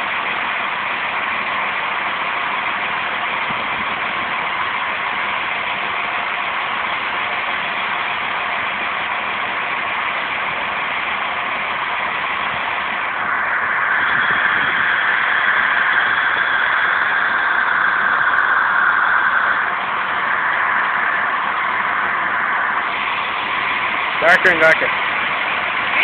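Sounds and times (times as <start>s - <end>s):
steam locomotive hissing steam: 12.6s - 26.0s.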